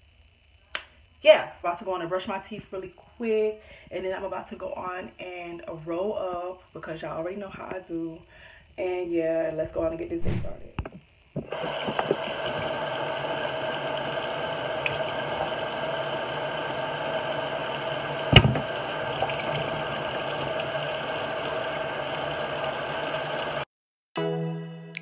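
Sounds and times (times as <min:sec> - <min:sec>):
sink tap running: 0:11.4 - 0:23.7.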